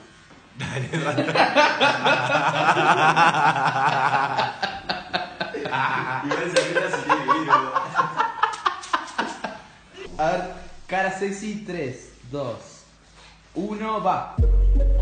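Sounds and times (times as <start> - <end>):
young men laughing: 0.6 - 10.1.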